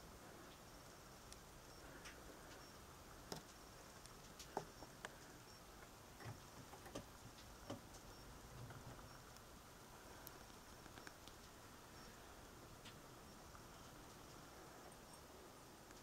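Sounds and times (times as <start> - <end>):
faint sharp clicks and taps: 2.0 - 9.5, 10.1 - 11.6.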